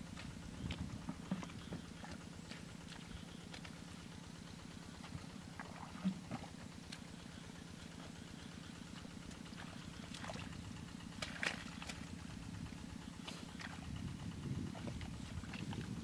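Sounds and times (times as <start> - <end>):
low pulsing drone: 0.0 - 16.0
squelching splashes in mud: 5.0 - 7.4, 9.2 - 12.3, 13.2 - 16.0.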